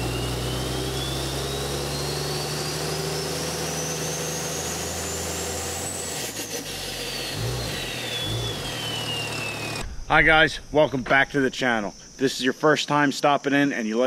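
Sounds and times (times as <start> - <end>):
engine running: 0.0 - 10.0
high whistle rising and falling: 0.0 - 10.8
low thump: 9.8 - 11.4.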